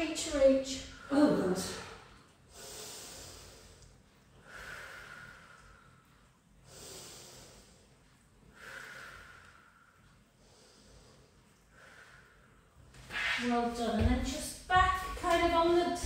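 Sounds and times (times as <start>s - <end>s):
woman breathing slowly: 0.8s - 13.0s.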